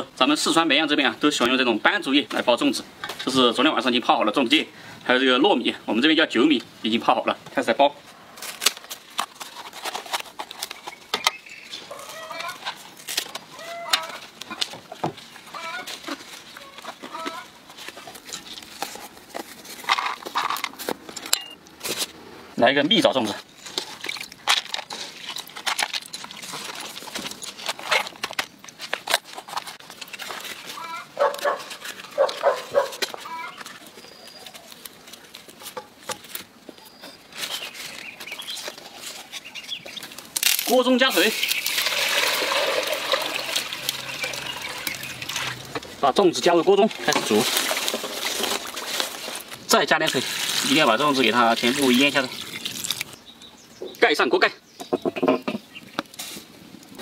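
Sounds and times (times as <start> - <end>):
bamboo leaves crackling and rustling: 5.9 - 53.2, 55.7 - 57.0
wavering animal calls: 11.8 - 12.7, 13.5 - 14.6, 15.5 - 17.6, 30.7 - 31.3, 33.2 - 34.8.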